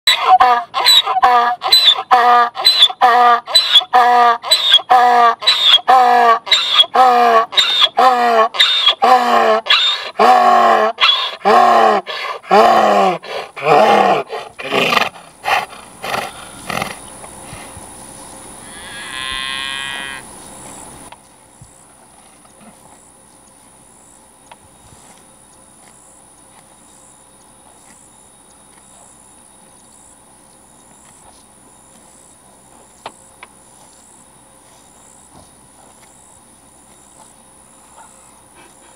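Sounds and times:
high-pitched animal call: 0.1s - 15.1s
donkey braying: 0.1s - 17.0s.

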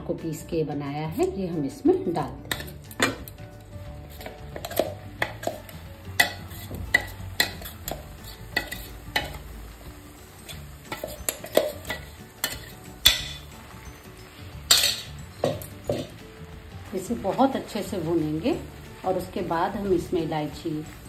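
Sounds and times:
frying sizzle: 1.2s - 21.0s
metal bowl clinking on pan: 2.5s - 3.4s, 4.1s - 9.4s, 10.4s - 13.5s, 14.7s - 16.2s.

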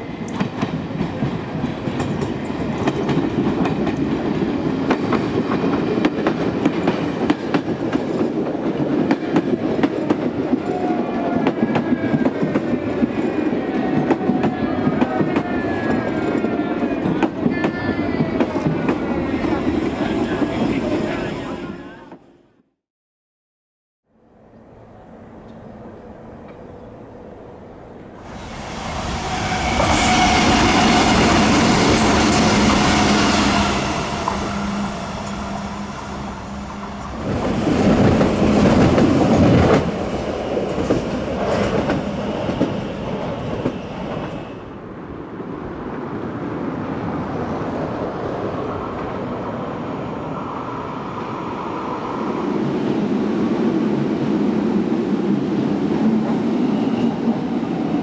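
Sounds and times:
train rumble: 24.9s - 58.0s.

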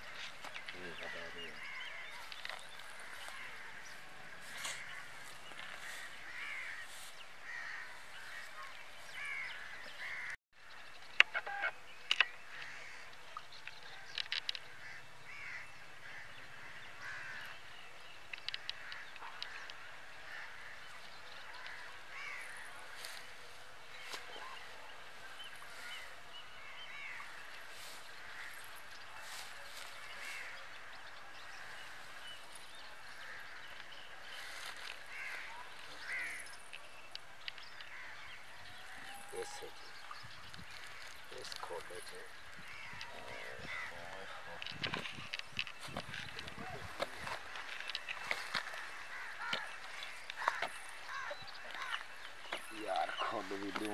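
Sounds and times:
birds calling: 0.0s - 53.9s.

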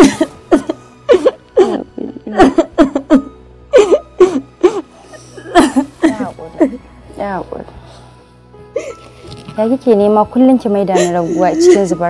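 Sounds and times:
woman sobbing: 0.0s - 6.9s, 8.8s - 9.0s, 10.9s - 12.0s.

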